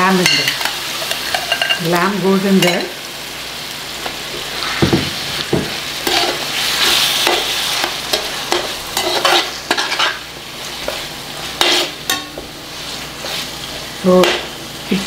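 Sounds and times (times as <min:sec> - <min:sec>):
meat sizzling in hot oil: 0:00.0 - 0:15.0
metal spoon scraping pan: 0:00.2 - 0:01.9, 0:06.0 - 0:10.2, 0:11.6 - 0:12.4.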